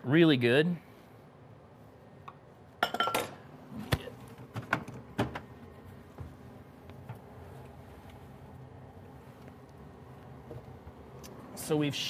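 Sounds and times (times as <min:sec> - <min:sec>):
kitchenware clattering and clinking: 0:02.8 - 0:03.4.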